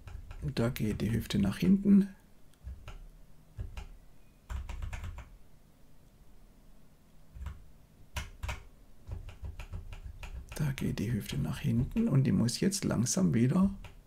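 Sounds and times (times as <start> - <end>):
keyboard arrow keys clicking: 8.2 - 10.7.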